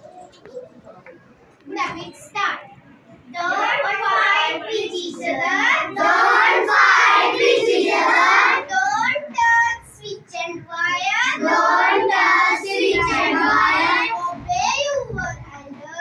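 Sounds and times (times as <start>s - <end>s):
children singing: 3.4s - 9.5s, 10.8s - 14.6s.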